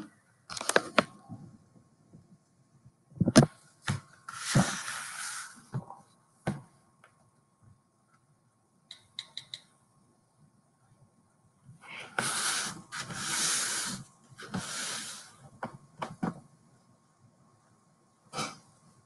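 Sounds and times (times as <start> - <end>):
sharp clicks: 8.9 - 9.7.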